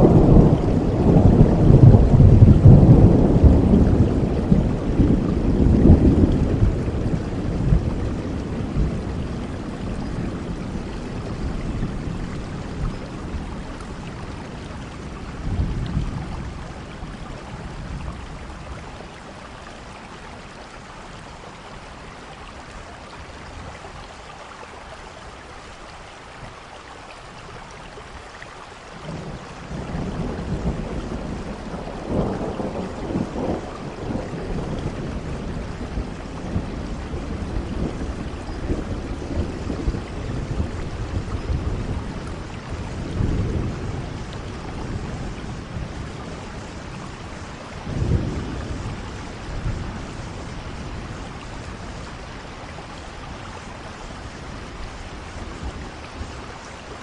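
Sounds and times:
rolling thunder: 0.0 - 19.4, 29.0 - 56.7
steady rain: 0.0 - 57.0.

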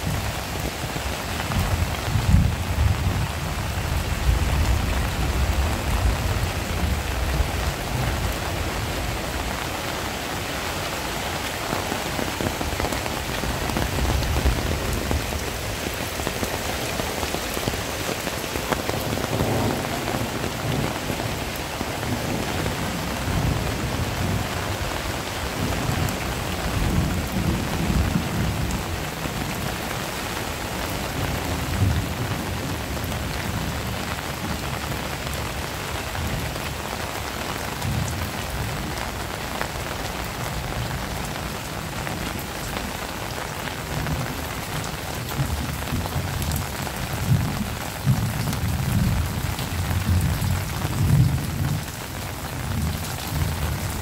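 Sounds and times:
heavy rain: 0.0 - 54.0
thunder rumbling: 11.6 - 29.8.

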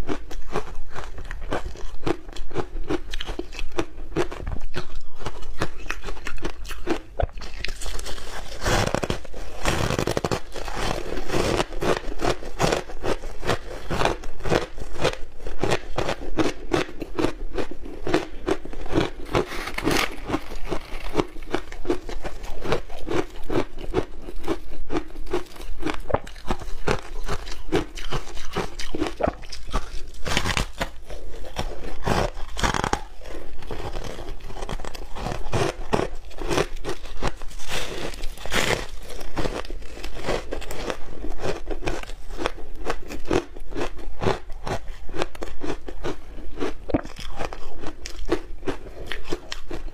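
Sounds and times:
crunching and chewing shaved ice: 0.0 - 49.9.

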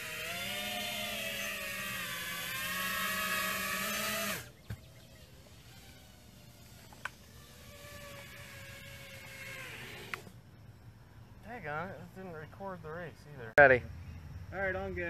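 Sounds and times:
quadcopter motors whining: 0.0 - 10.4.

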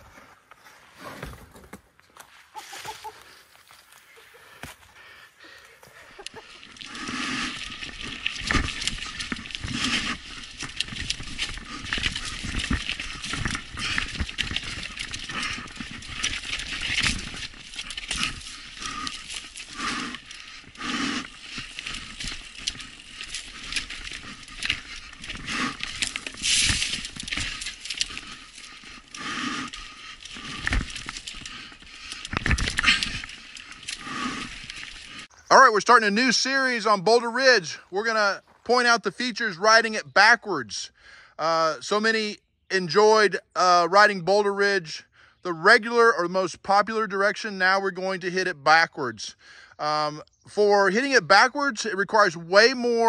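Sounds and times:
mountain bike clattering over rocks: 6.2 - 35.3.

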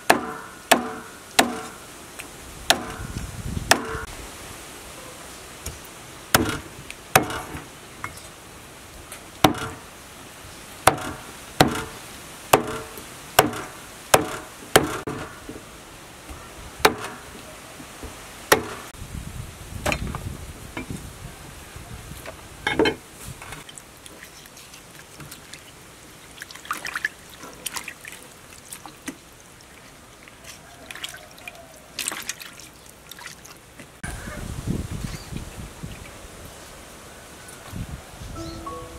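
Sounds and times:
cleaver chopping through bone: 0.1 - 1.8, 3.7 - 4.1, 6.4 - 6.6, 9.5 - 9.8, 10.9 - 15.3, 18.5 - 18.8
water splashing and trickling: 23.2 - 37.0.

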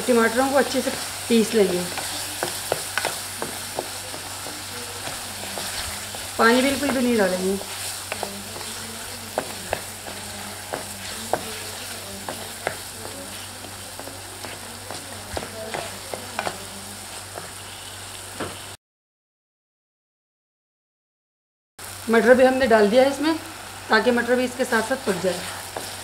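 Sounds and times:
food sizzling in oil: 0.0 - 18.8, 21.8 - 26.0
spatula knocking against pan: 1.7 - 7.1, 8.1 - 13.2.

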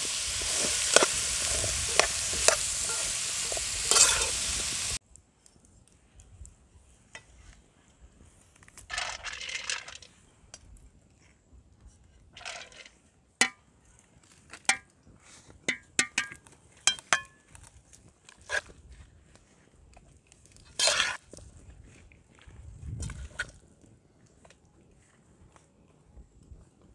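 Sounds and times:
rice swishing: 0.0 - 5.0
metal scoop clinking on steel pot: 0.4 - 4.4.

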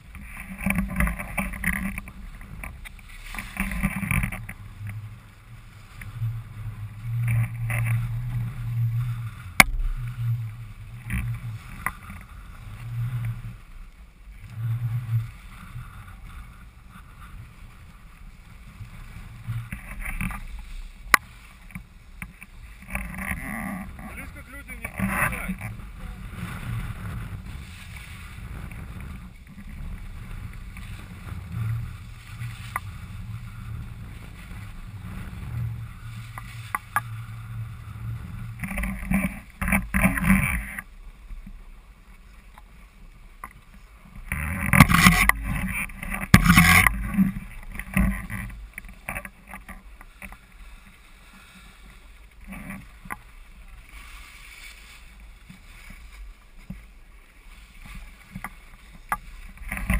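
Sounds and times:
wind buffeting microphone: 0.0 - 40.8
skis scraping on snow: 0.0 - 59.9.

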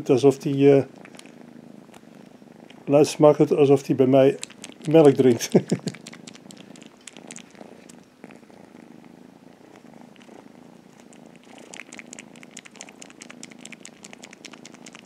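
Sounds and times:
kitten purring: 0.0 - 15.0
kitten mouth smacking: 1.0 - 2.8, 4.3 - 8.5, 9.9 - 15.0.

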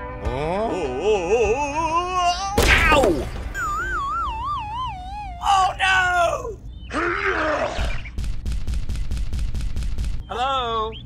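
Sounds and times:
warbling falling whistle tone: 3.5 - 5.5.

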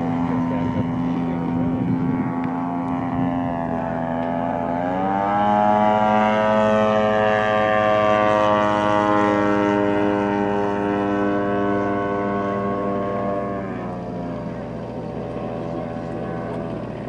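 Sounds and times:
model plane engine and propeller: 0.0 - 17.0.

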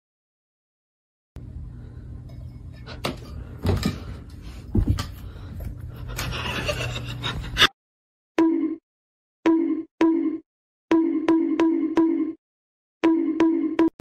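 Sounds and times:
steady low hum: 1.4 - 7.7.

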